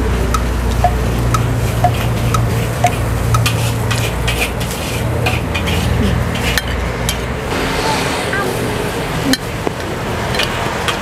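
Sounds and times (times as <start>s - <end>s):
metal utensils clinking on plates: 1.7s - 7.2s, 10.3s - 11.0s.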